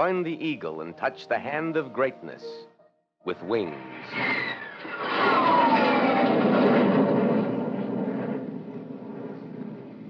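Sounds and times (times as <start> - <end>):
jet aircraft flying past: 3.3 - 10.0.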